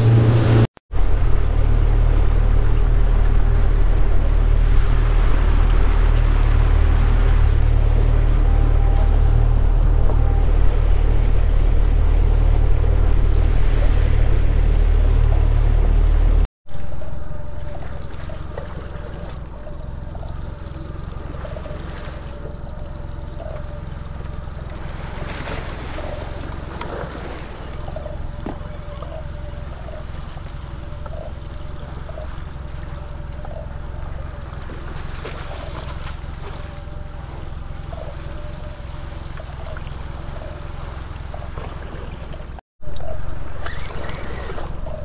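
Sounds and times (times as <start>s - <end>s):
water lapping against boat hull: 17.4s - 45.0s.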